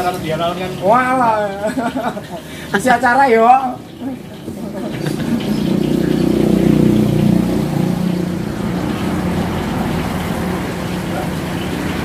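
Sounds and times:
traffic engine rumble: 3.8s - 12.0s.

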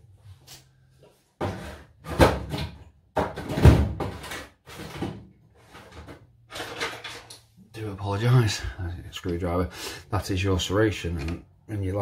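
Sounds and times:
tools clattering: 5.7s - 7.5s.

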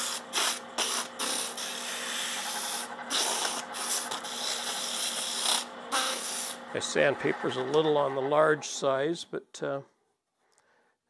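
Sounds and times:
sandpaper rasping on spinning wood: 0.0s - 6.6s
faint lathe hum: 0.0s - 10.9s.

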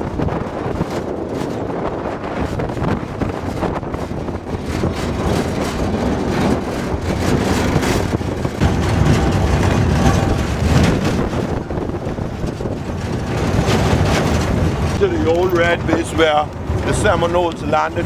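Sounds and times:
knocks and rattles: 0.0s - 18.0s
truck engine and tyres rumbling: 0.0s - 18.0s
wind on microphone: 0.0s - 18.0s.

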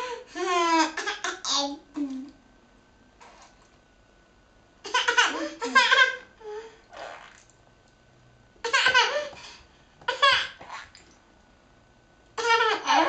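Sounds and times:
young child laughing: 4.9s - 6.3s.

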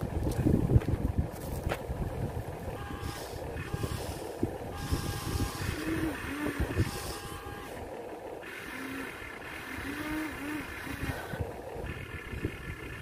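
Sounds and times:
wind rumbling on microphone: 0.0s - 8.0s, 9.3s - 13.0s
small electric motors whirring: 2.9s - 7.8s, 8.4s - 11.4s.

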